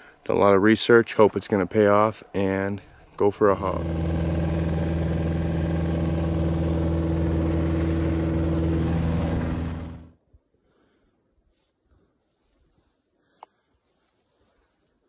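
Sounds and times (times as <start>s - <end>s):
propeller plane engine droning: 3.5s - 10.1s.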